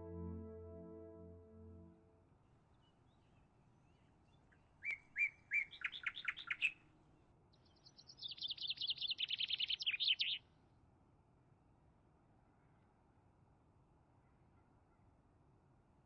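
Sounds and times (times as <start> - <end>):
songbird singing trills: 4.8 - 6.8, 7.8 - 10.4.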